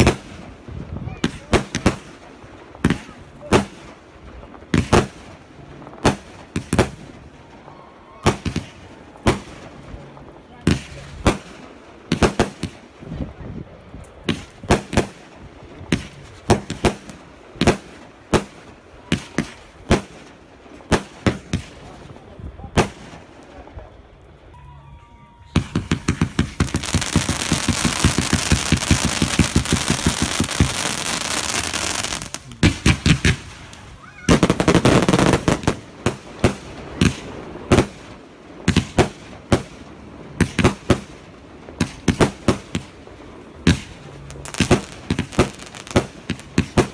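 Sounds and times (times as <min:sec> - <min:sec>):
fireworks bangs: 0:00.0 - 0:24.5, 0:25.3 - 0:46.9
rapid fireworks crackling: 0:00.0 - 0:46.9.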